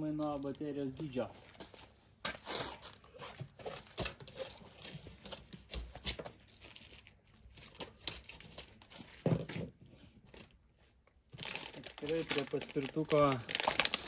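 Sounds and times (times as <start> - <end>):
cardboard tearing and crinkling: 2.2 - 9.6, 11.4 - 14.0.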